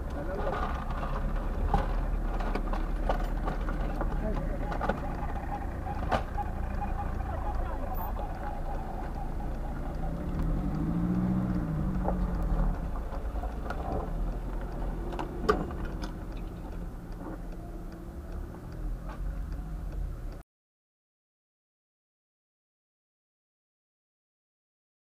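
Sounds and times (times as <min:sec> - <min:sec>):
sharp clicks: 0:00.0 - 0:20.4
vehicle engine rumble: 0:00.0 - 0:20.4.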